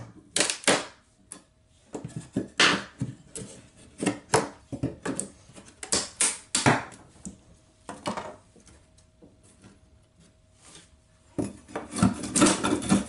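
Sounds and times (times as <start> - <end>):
pry bar scraping plywood: 11.4 - 13.0.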